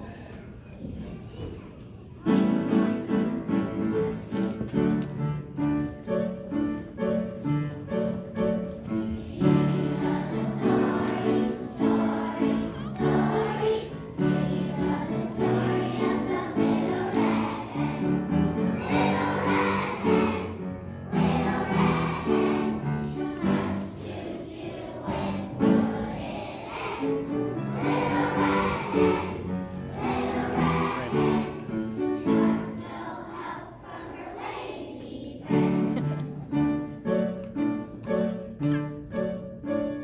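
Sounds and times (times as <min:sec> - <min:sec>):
children singing: 0:08.8 - 0:36.5.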